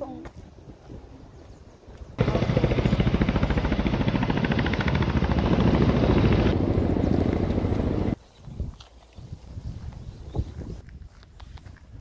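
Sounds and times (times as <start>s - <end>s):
loud throbbing machine: 2.2s - 8.1s.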